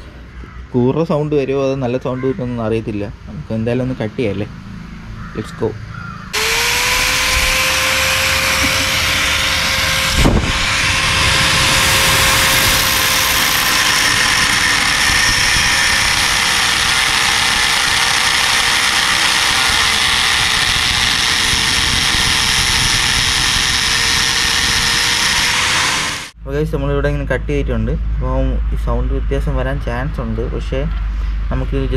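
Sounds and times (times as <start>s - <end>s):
angle grinder cutting metal: 6.3s - 26.4s.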